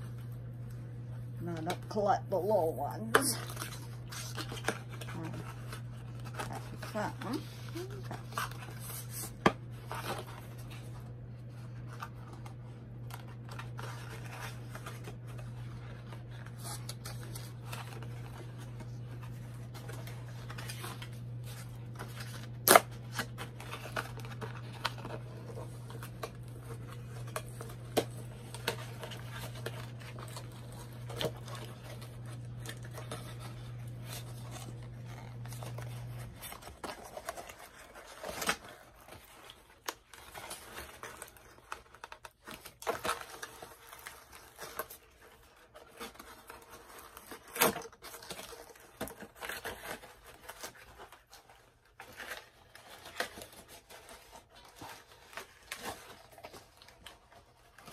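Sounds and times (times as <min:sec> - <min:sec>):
cardboard packaging rustling: 0:00.0 - 0:57.9.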